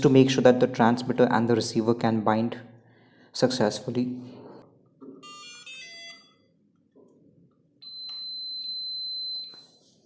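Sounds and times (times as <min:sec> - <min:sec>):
electronic beep tones: 0:07.8 - 0:09.8
long high beep: 0:07.8 - 0:09.8.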